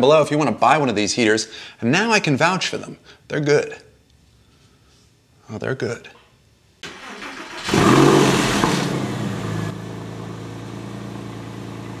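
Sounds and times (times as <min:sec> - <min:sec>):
engine starting and idling: 0:06.8 - 0:09.8.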